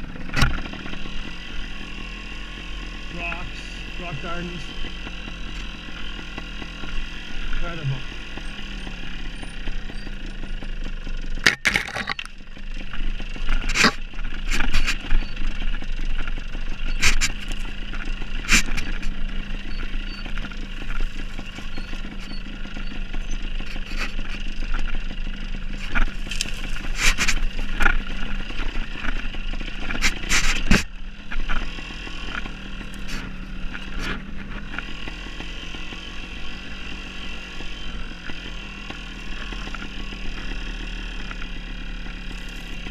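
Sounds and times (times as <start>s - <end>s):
dirt bike engine at low revs: 0.0s - 42.9s
sharp knocks and clatter on rocks: 11.4s - 22.4s, 25.7s - 35.2s.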